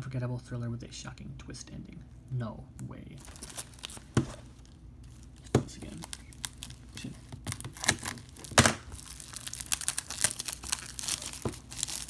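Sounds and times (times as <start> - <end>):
plastic wrap crinkling and tearing: 3.2 - 12.0
scissors slitting shrink wrap: 7.4 - 12.0.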